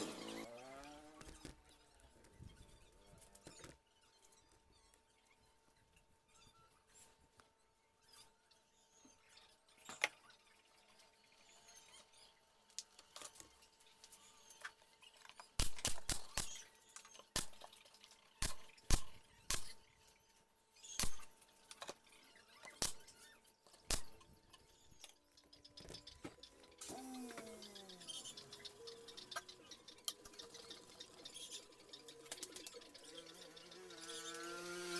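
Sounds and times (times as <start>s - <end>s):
nail gun firing into plywood: 15.6s - 16.6s, 17.4s - 17.6s, 18.4s - 19.8s, 21.0s - 21.3s.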